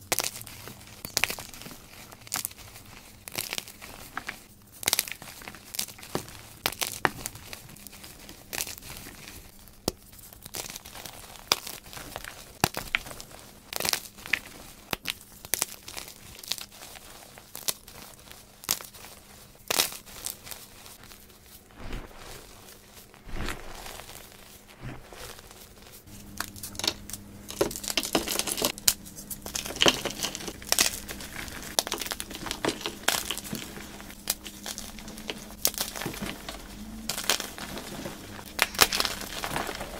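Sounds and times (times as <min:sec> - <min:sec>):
chalk crumbling between fingers: 0:00.1 - 0:39.9.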